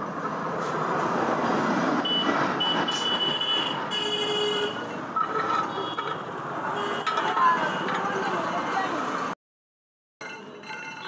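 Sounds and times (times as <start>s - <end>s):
vehicle engine rumbling: 4.7s - 9.4s.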